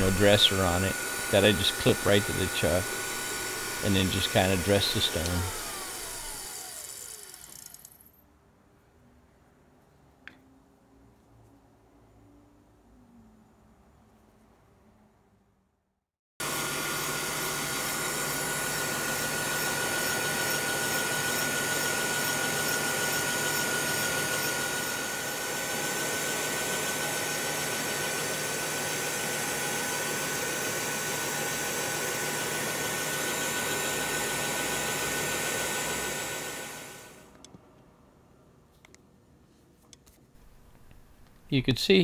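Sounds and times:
grinder grinding steel shaft: 0.0 - 8.0, 16.4 - 37.2.

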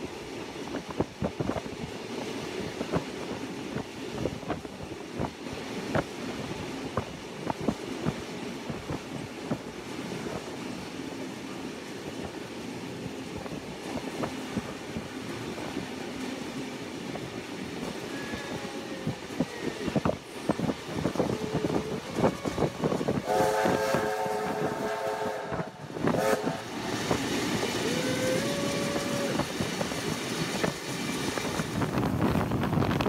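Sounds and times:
train wheels rumbling on rails: 0.0 - 33.0
steam locomotive whistle: 21.6 - 26.8, 27.8 - 29.4.

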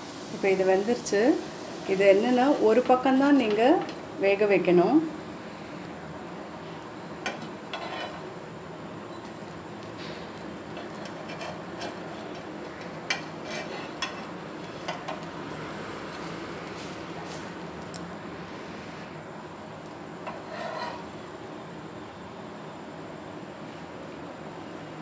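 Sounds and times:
metal spatula scraping griddle: 7.3 - 8.3, 10.8 - 15.2, 20.2 - 21.2.

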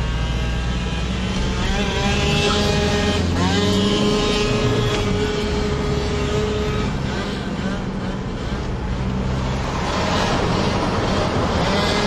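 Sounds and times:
car engine: 0.0 - 12.0
moped engine at high revs: 0.0 - 12.0
road noise: 0.0 - 12.0.

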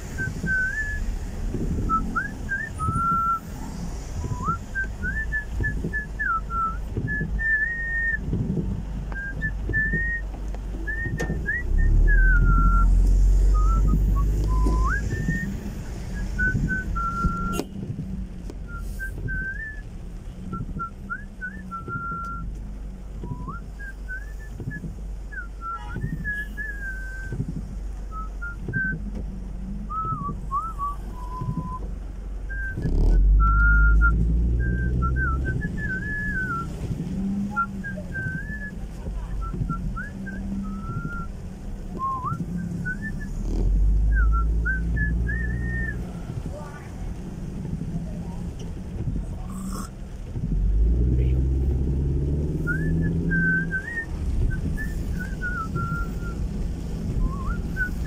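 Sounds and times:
car driving rumble: 0.0 - 58.0
person whistling a tune: 0.1 - 1.2, 1.8 - 3.5, 4.2 - 8.3, 9.1 - 17.7, 18.6 - 19.9, 20.5 - 22.6, 23.2 - 29.1, 29.9 - 31.9, 32.5 - 36.8, 37.5 - 46.2, 49.4 - 49.9, 52.5 - 58.0.

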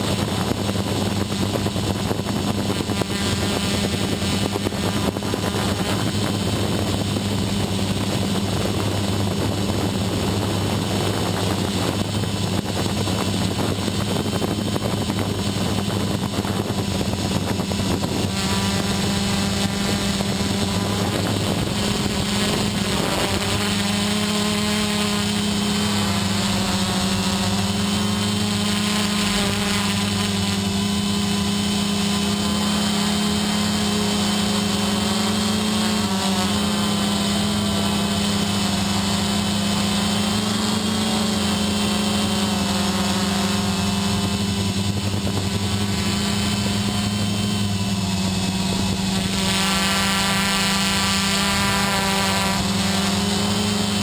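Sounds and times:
drone motors humming: 0.0 - 54.0.

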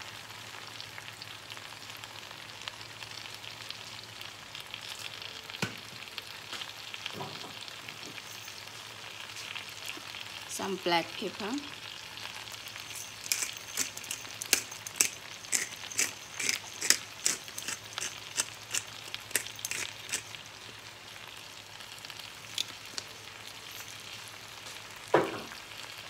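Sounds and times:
faint sizzle from pan: 0.0 - 26.0
pepper grinder clicking: 13.2 - 20.3.

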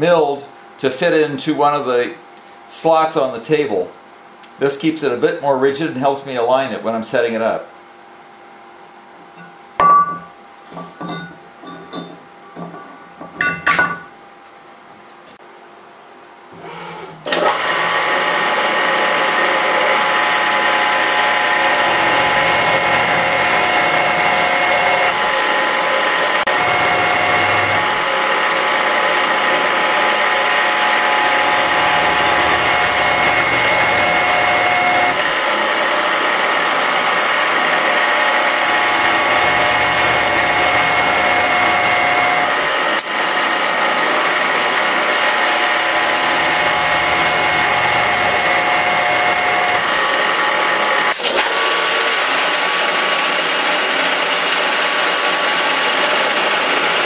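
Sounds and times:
milling machine whine with hiss: 16.5 - 57.0.

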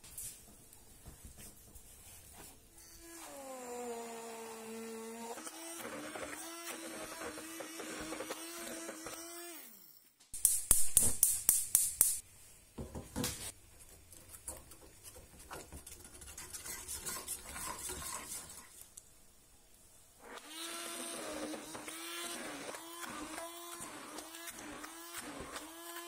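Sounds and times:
immersion blender running: 3.0 - 9.9, 20.3 - 26.0
metal spoon stirring in saucepan: 13.8 - 19.0.

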